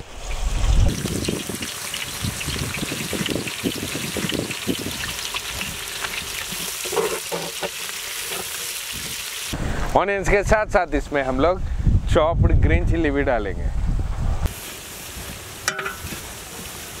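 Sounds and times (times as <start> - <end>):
onions sizzling in hot oil: 0.2 - 9.6, 14.5 - 17.0
metal ladle stirring: 15.6 - 16.3.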